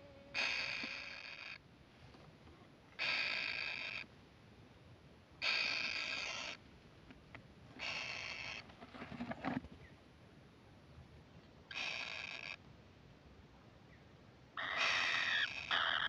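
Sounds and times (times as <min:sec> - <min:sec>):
nestlings harsh buzzy begging calls: 0:00.3 - 0:01.6, 0:03.0 - 0:04.1, 0:05.4 - 0:06.6, 0:07.8 - 0:08.6, 0:14.6 - 0:16.0.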